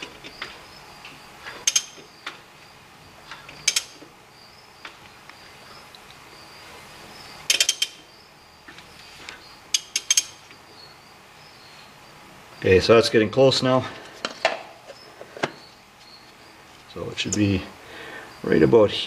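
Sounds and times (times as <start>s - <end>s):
ratchet wrench clicks: 1.6s - 2.0s, 3.6s - 4.0s, 7.5s - 8.0s, 9.7s - 10.4s.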